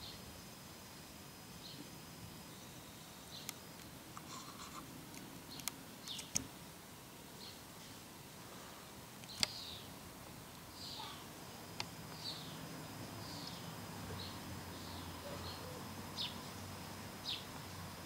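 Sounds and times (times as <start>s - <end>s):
sharp clicks: 5.1s - 6.5s, 9.2s - 9.6s.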